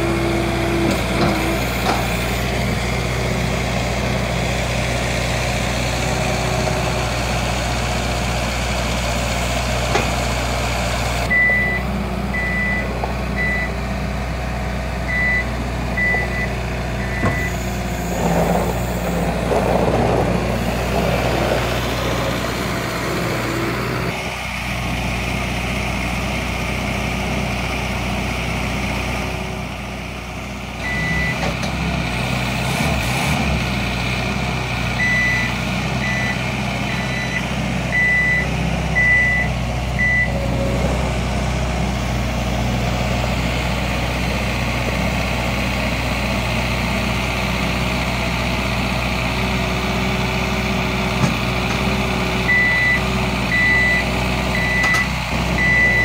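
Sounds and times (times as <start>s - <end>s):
diesel engine running: 0.0s - 56.0s
reversing alarm beeping: 11.3s - 13.8s, 15.1s - 17.6s, 35.0s - 40.7s, 52.5s - 56.0s.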